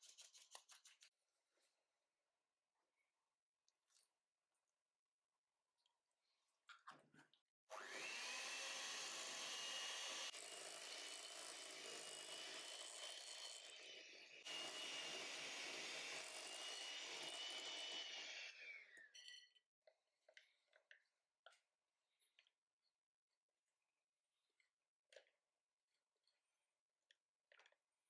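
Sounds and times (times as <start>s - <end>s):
electric hand mixer whining: 7.7s - 19.1s.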